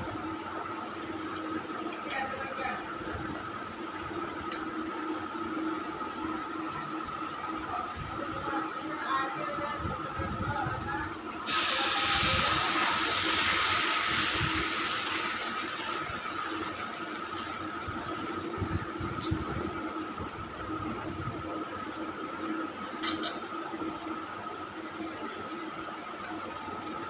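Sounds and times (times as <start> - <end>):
batter sizzling on hot pan: 0.0 - 0.7, 11.4 - 27.0.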